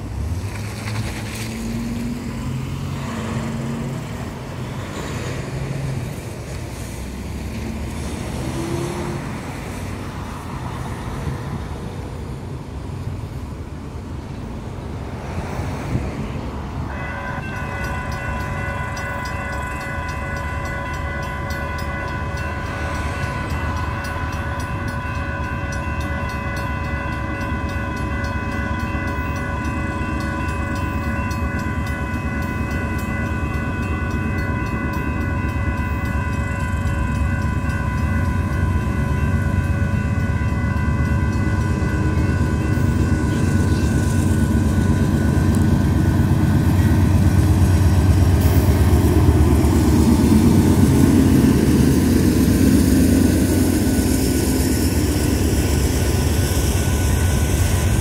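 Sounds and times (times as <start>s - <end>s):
road traffic: 0.0s - 58.0s
electronic crossing bells: 16.9s - 48.2s.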